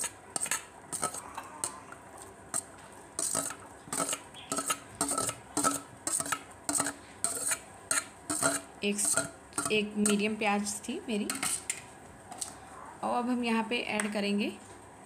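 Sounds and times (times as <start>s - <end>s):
spoon scraping metal bowl: 0.0s - 1.8s, 2.5s - 10.3s, 11.3s - 11.8s.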